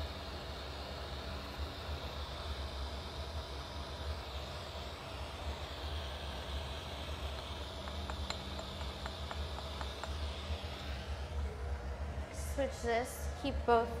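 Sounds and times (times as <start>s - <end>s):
burner hissing: 0.0s - 14.0s
low hum: 0.0s - 14.0s.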